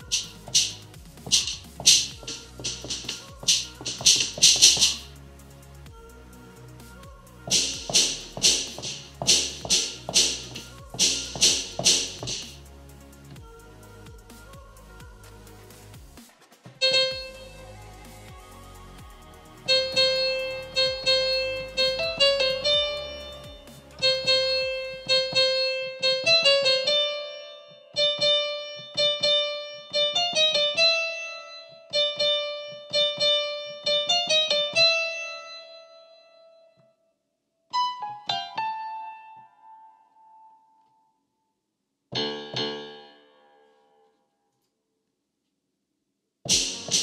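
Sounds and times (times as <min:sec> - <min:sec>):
slow piano-like melody: 0:19.7 - 0:36.8, 0:37.7 - 0:41.2, 0:42.2 - 0:43.7.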